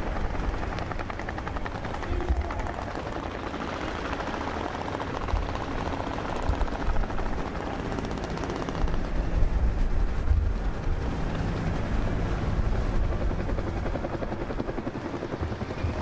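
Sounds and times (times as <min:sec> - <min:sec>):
helicopter rotor beating: 0:00.0 - 0:16.0.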